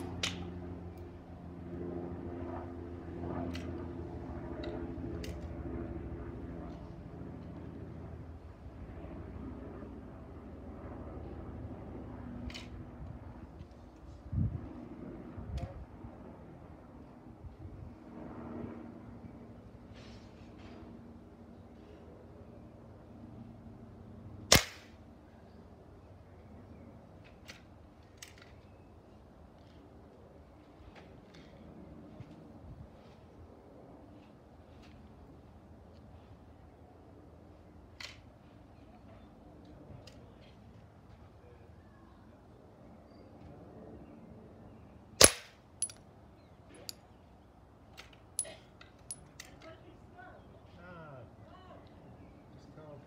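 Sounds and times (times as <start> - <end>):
air rifle shot: 24.5 - 24.9, 45.2 - 45.5.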